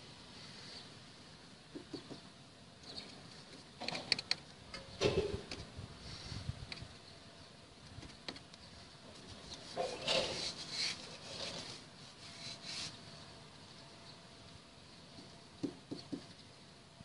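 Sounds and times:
hand rustling and scraping: 0:09.2 - 0:13.2.

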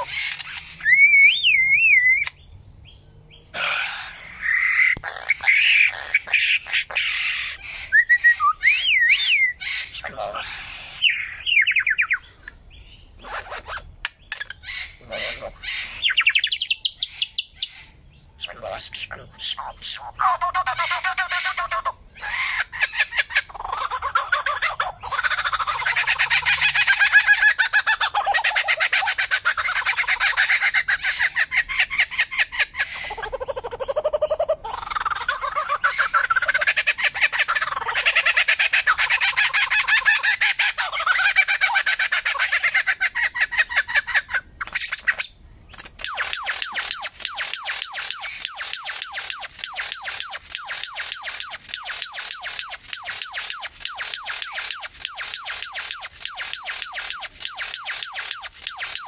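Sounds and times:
bird singing: 0:00.0 - 0:59.0.

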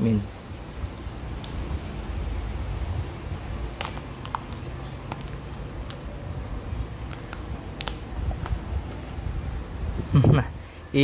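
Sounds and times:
plastic wrap crinkling: 0:03.7 - 0:08.7.

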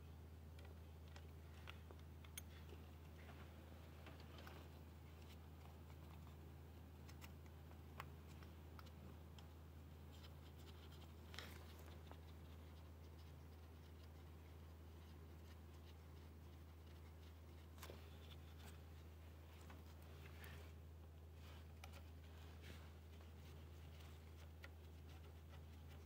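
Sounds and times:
steady low hum: 0:00.0 - 0:26.0
faint scratching: 0:08.2 - 0:26.0.

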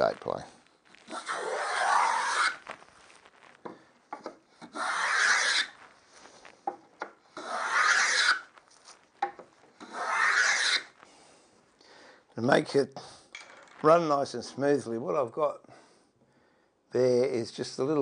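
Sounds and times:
wood plane rasping: 0:01.1 - 0:02.6, 0:04.2 - 0:05.8, 0:07.4 - 0:08.5, 0:09.8 - 0:10.9.

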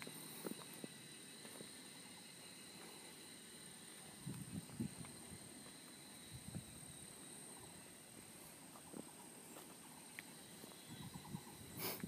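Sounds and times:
faint high-pitched whine: 0:00.0 - 0:12.0
wind rumbling on microphone: 0:04.1 - 0:05.6, 0:06.2 - 0:07.1, 0:10.8 - 0:12.0.

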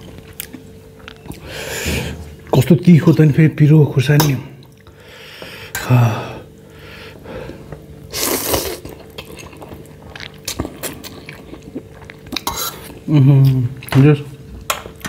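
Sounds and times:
noodle slurp: 0:08.1 - 0:12.9
chewing: 0:08.5 - 0:14.0.

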